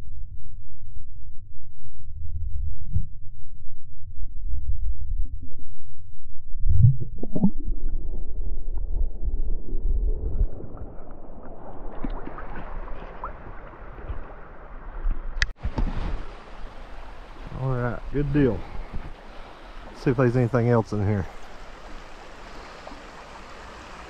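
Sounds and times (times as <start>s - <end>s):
muffled water sloshing: 6.6s - 24.0s
water splash: 6.8s - 17.7s
flowing stream rushing: 11.6s - 24.0s.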